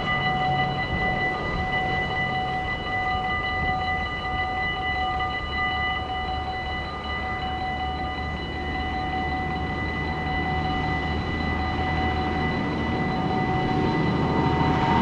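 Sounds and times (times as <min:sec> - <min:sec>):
crossing warning bells ringing: 0:00.0 - 0:15.0
low rumble: 0:11.2 - 0:15.0.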